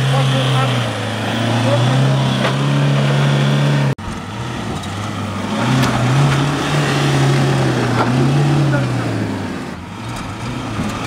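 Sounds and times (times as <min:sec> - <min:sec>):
diesel engine pulling under load: 0:00.0 - 0:11.0.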